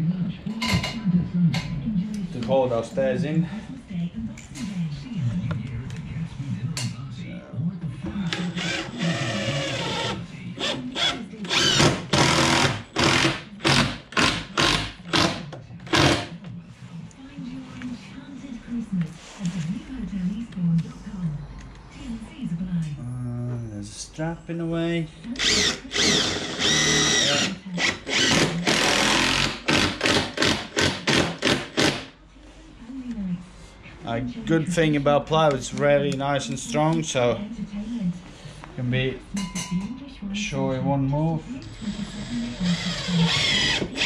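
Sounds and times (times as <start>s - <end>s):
cordless drill driving screws: 25.4s - 32.0s, 42.6s - 44.0s.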